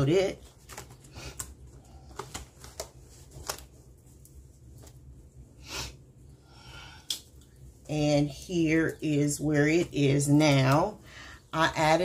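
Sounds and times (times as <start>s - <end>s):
paper rustling and shuffling: 0.1s - 5.2s.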